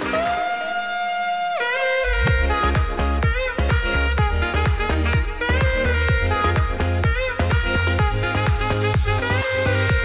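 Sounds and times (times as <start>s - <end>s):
deep bass line: 1.9s - 10.0s
steady beat: 2.0s - 10.0s.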